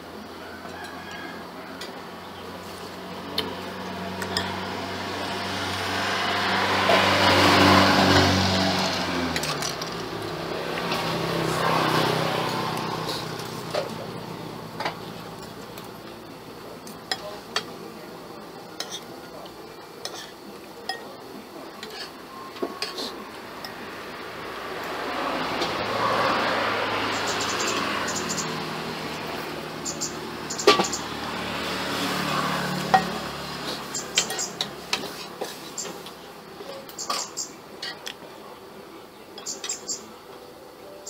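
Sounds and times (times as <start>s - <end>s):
vehicle engine passing by: 1.4s - 16.7s, 23.0s - 36.2s.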